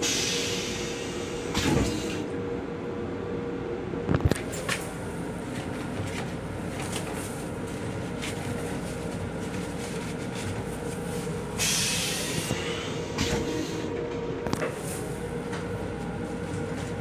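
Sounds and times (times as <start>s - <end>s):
train car rumble: 0.0s - 17.0s.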